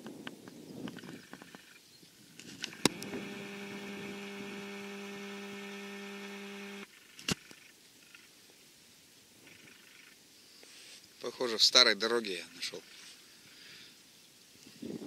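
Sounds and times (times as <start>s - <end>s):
sharp click: 2.6s - 3.8s
low electric hum: 2.6s - 6.9s.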